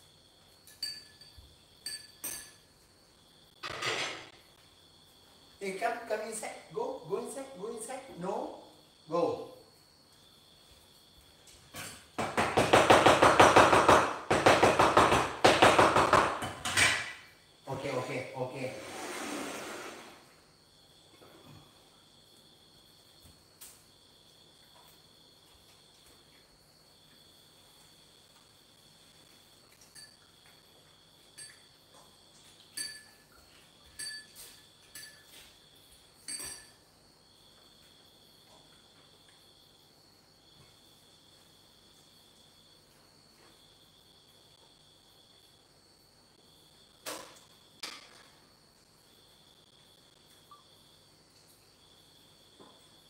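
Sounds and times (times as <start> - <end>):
cricket trill: 0.0 - 53.0
dishes and cutlery clinking: 0.6 - 2.8, 32.7 - 35.5, 36.2 - 36.9.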